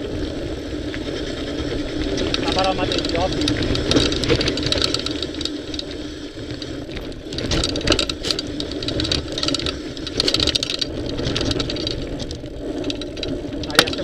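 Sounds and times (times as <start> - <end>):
bike rattling over bumps: 0.0 - 14.0
tyres crunching over loose stones: 0.0 - 14.0.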